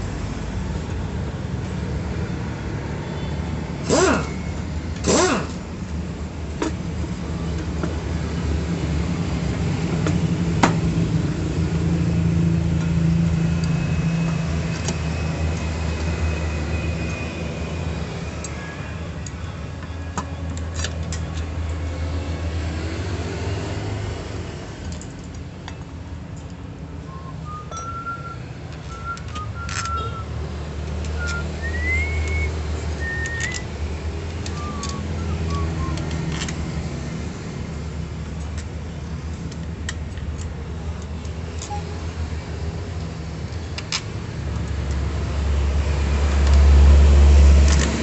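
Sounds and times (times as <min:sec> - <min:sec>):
wrench and bolts clinking on metal: 0:27.7 - 0:28.1.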